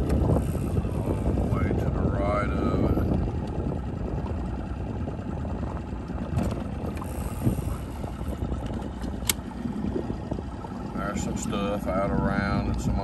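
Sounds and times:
boat motor rumbling: 0.0s - 13.0s
wind and water noise: 0.0s - 13.0s
sharp click: 9.1s - 9.4s.

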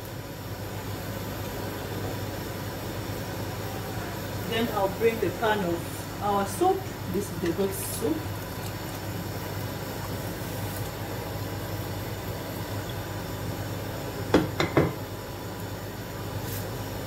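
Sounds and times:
knocks on metal pot: 14.3s - 15.0s.

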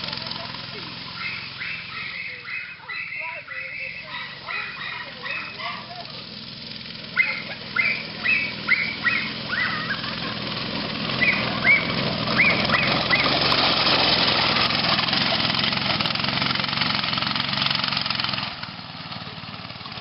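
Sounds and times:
go-kart engine driving past: 0.0s - 20.0s
fowl squawking: 1.1s - 6.1s, 7.1s - 10.4s, 11.1s - 13.5s.

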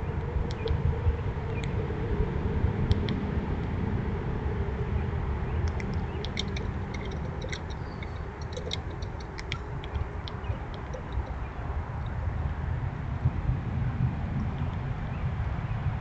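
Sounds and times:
steady low rumble: 0.0s - 16.0s
squirrels cracking seed shells: 5.6s - 12.1s.

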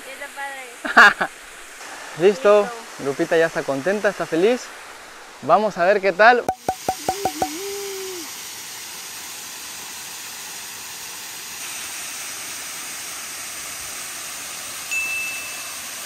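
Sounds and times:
waterfall rushing: 0.1s - 5.9s, 6.5s - 8.7s.

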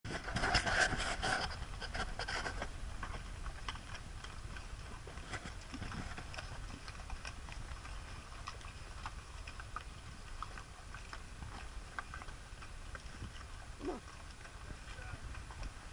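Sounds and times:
hooves clopping on stone: 0.1s - 15.9s.

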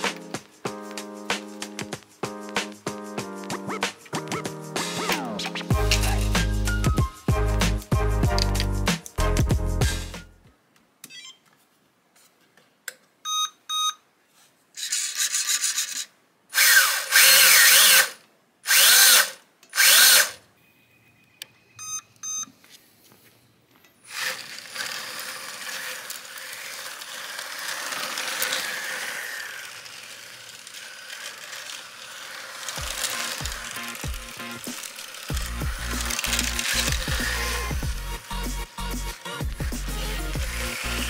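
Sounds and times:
short electronic beeps: 13.3s - 14.0s, 20.6s - 22.5s
electric motor spinning up: 16.6s - 20.3s, 24.1s - 41.0s.

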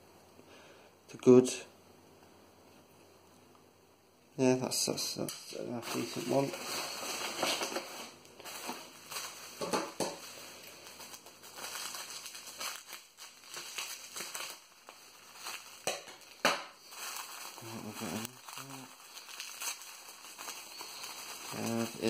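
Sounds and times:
bubble wrap and paper crinkling: 4.9s - 22.0s
sharp crackles: 5.4s - 22.0s.

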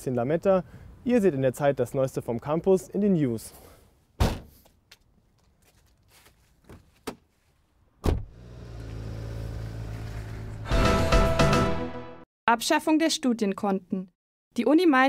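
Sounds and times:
car door slamming: 4.2s - 4.5s, 8.0s - 8.4s
car tailgate slamming: 4.2s - 4.5s, 8.0s - 8.3s
car engine starting and idling: 8.1s - 11.0s.

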